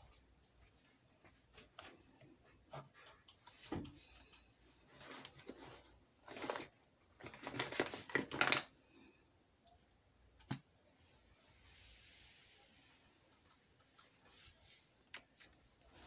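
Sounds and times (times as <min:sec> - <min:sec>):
rustling and scraping: 0:04.8 - 0:08.4.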